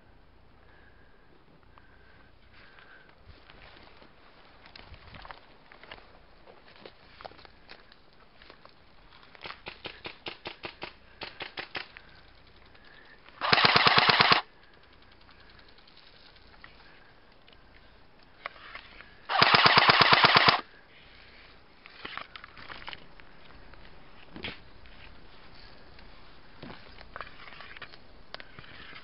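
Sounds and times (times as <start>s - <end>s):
airsoft gun full-auto bursts: 13.4s - 14.5s, 19.3s - 20.6s
faint rapid shots: 13.4s - 14.5s, 19.3s - 20.6s.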